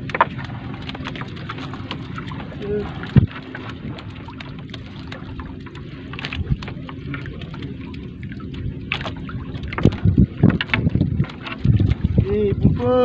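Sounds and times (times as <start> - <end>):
water dripping: 0.0 - 12.3
net knocking against hull: 8.9 - 12.2.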